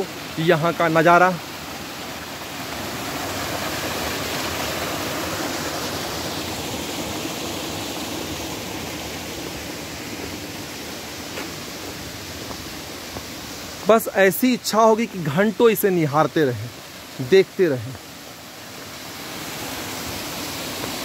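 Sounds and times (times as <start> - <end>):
stream cascading over boulders: 0.0 - 21.0
waterfall rushing: 0.0 - 21.0.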